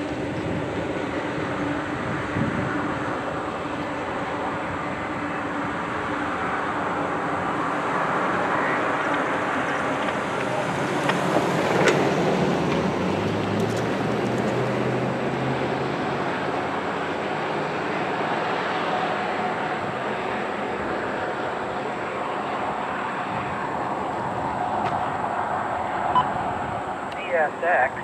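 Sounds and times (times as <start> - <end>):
freight train rolling on rails: 0.0 - 14.8
car passing: 0.0 - 28.0.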